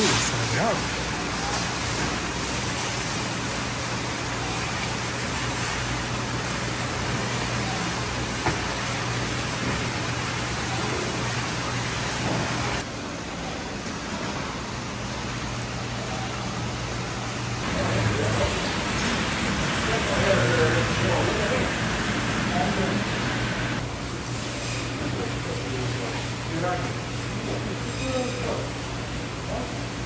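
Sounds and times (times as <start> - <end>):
water rushing hiss: 17.6 - 23.8.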